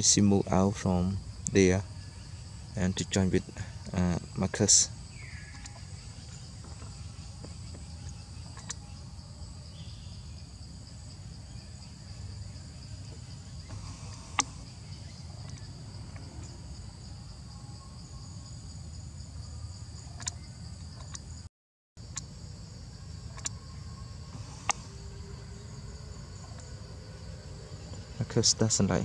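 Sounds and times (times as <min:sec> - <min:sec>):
forest insects droning: 0:00.0 - 0:29.0
sharp click: 0:20.2 - 0:20.4.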